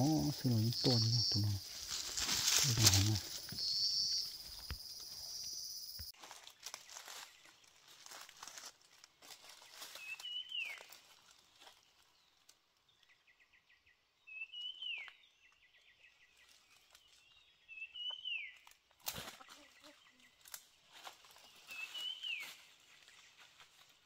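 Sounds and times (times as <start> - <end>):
dry leaves crunching underfoot: 0.4 - 4.6, 6.1 - 12.6, 18.7 - 24.0
bird whistling call: 3.6 - 4.4.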